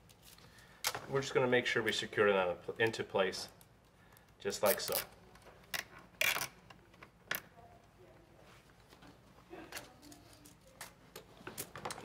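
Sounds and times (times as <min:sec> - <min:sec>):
faint handling sounds: 0:00.0 - 0:12.0
zip tie ratcheting: 0:06.2 - 0:06.6.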